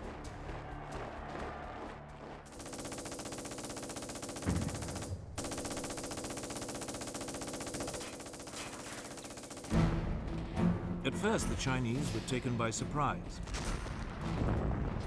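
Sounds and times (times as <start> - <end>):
machine-gun fire: 2.5 - 10.2.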